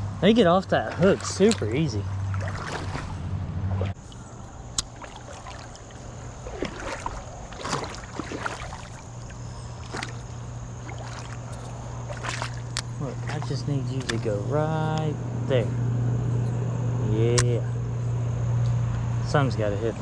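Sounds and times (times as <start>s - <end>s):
steady low hum: 0.0s - 20.0s
small splashes: 0.6s - 14.4s
water sloshing around legs: 0.6s - 14.5s.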